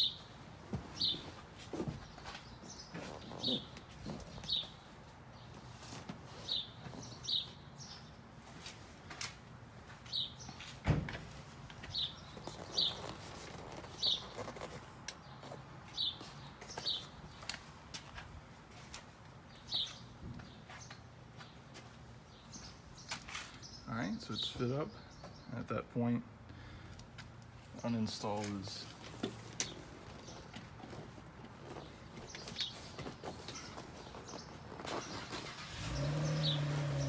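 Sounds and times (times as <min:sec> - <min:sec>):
bird chirping: 0:11.8 - 0:17.5, 0:19.5 - 0:21.6, 0:31.6 - 0:37.0.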